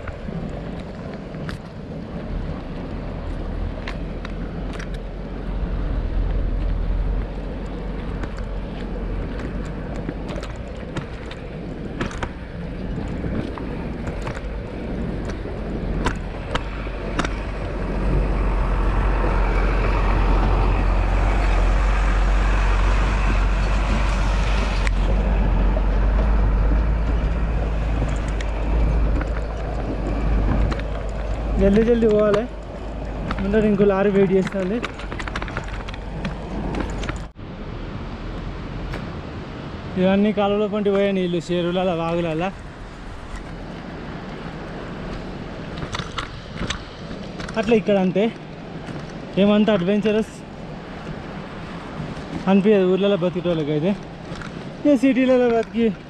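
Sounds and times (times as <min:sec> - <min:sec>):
wind buffeting microphone: 0:00.0 - 0:56.0
bike rattling on gravel: 0:06.2 - 0:22.0, 0:23.0 - 0:37.3.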